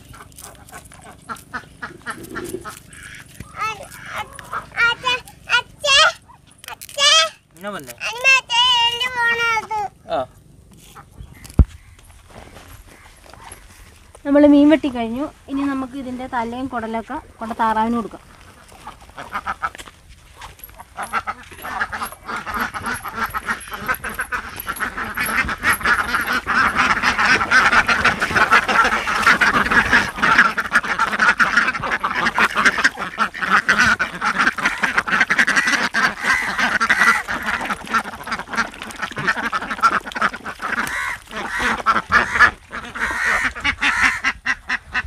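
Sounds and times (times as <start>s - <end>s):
ducks quacking: 0.0s - 14.0s, 17.1s - 45.0s.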